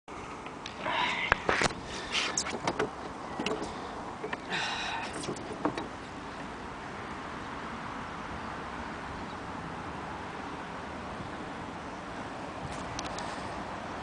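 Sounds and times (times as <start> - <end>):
knocks and thumps in wooden boat: 2.2 - 6.0.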